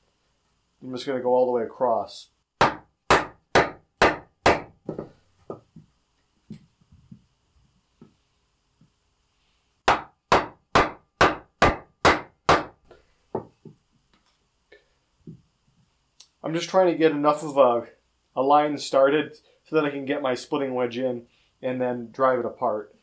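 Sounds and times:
wooden club striking hatchet: 2.6 - 5.6, 9.9 - 12.8.

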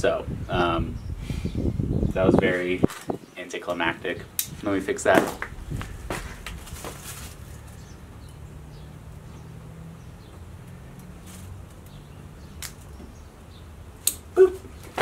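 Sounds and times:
hands rustling and handling: 5.2 - 7.8.

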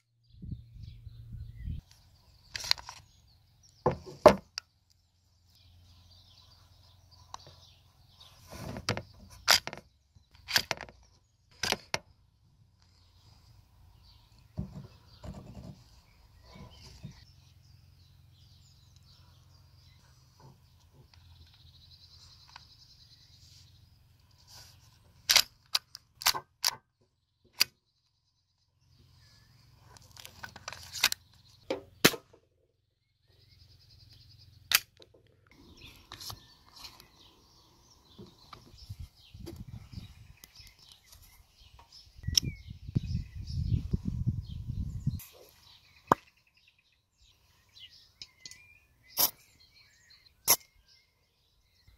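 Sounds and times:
airsoft pistol slide clicks and snaps: 25.3 - 26.8, 34.7 - 35.0.

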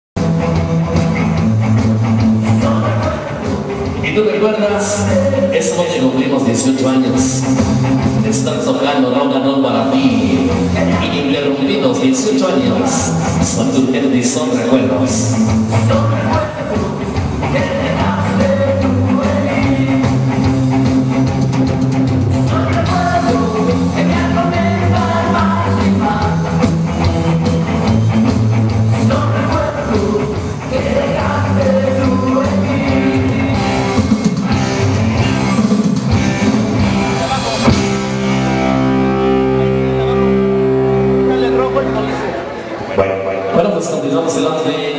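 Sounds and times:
guitar: 0.2 - 44.9
rock and roll music: 0.2 - 44.9
person singing: 2.4 - 7.5, 8.2 - 20.5, 22.4 - 26.7, 28.9 - 35.4.

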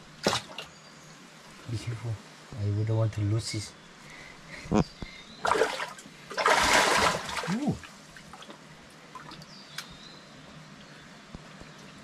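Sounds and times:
water splashing: 0.2 - 0.7, 5.4 - 9.5.

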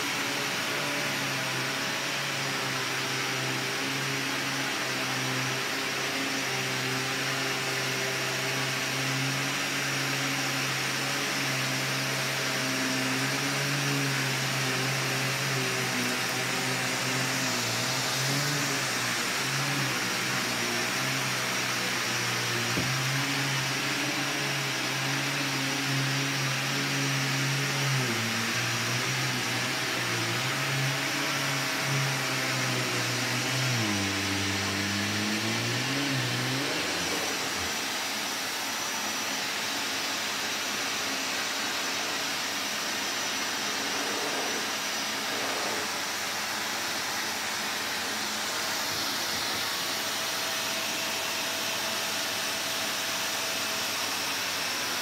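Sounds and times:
vacuum cleaner running on carpet: 0.0 - 55.0.

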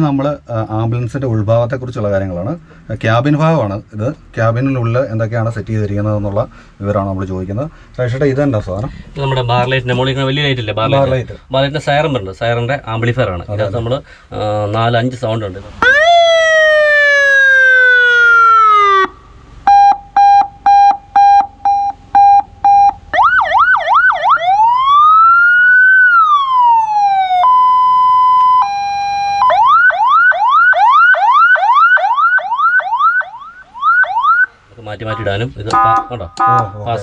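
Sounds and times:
ambulance siren cycling tones: 15.8 - 34.5, 35.1 - 37.0.

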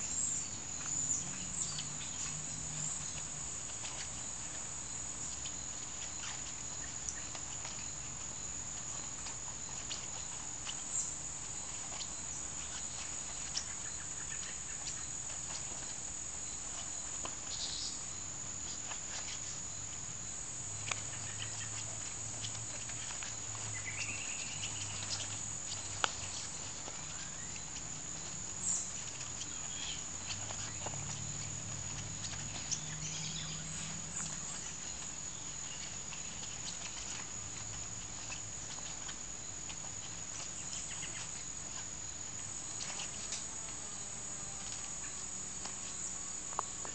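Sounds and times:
crickets chirping: 0.0 - 46.9.

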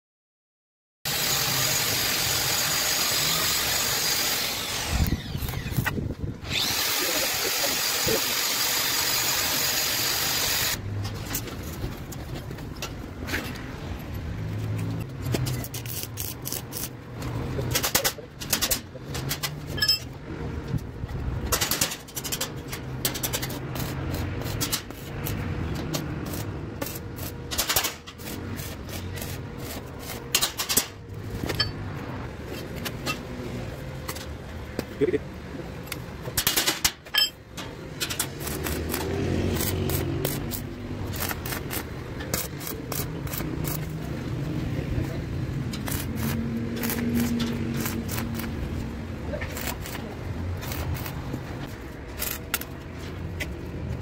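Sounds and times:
power tool whining: 1.1 - 10.8.

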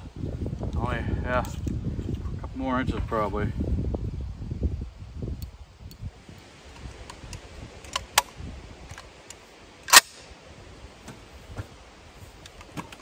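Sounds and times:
rifle metallic clicks: 8.9 - 10.3.

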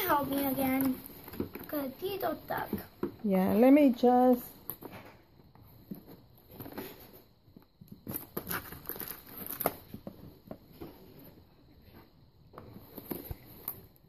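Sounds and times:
packaging rustling and crinkling: 5.8 - 14.0.

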